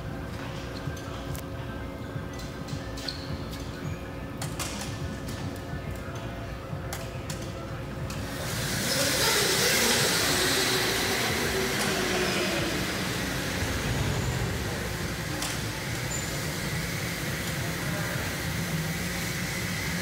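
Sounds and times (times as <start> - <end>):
go-karts passing by: 8.2 - 20.0.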